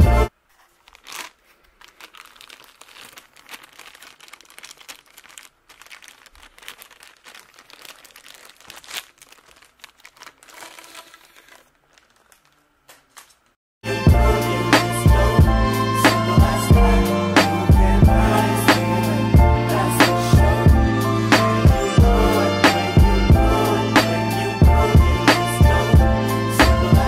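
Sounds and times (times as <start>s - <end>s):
plastic sleeve crinkling: 0.3s - 13.6s.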